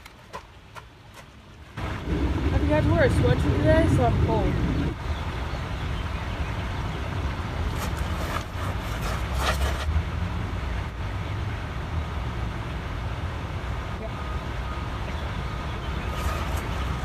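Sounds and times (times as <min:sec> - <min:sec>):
wind buffeting microphone: 0:01.8 - 0:09.4.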